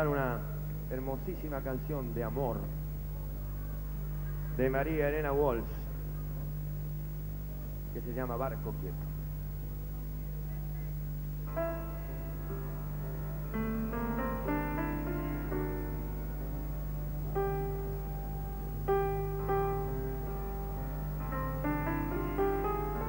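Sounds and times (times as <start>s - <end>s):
steady low hum: 0.0s - 23.0s
piano playing: 11.4s - 23.0s.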